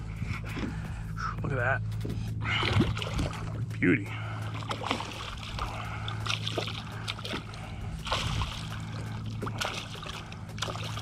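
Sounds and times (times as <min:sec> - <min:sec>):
steady low hum: 0:00.0 - 0:11.0
fish splashing in water: 0:04.5 - 0:11.0.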